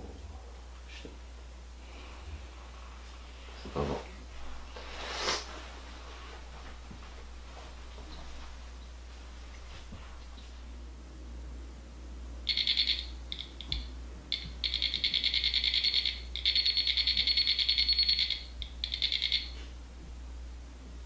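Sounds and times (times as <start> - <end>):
rapid electronic alarm beeps: 12.5 - 19.5.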